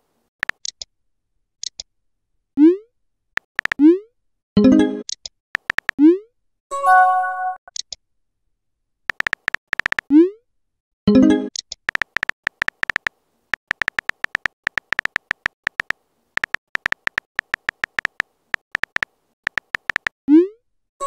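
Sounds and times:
phone keyboard tap clicks: 3.5s - 3.8s, 5.6s - 6.0s, 9.1s - 10.1s, 11.8s - 20.2s.

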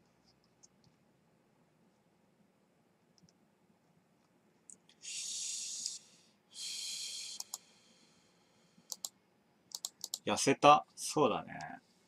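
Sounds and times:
hissing noises: 5.0s - 7.7s.

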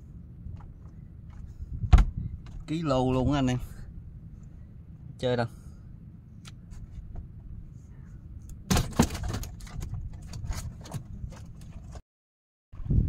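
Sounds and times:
wind rumbling on microphone: 0.0s - 4.7s, 6.6s - 12.0s, 12.8s - 13.0s.

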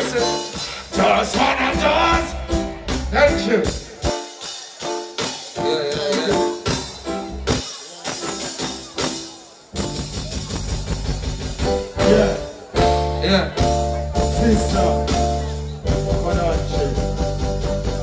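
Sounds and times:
band music with steady beat: 0.0s - 18.0s
heavy bass line: 9.8s - 18.0s.

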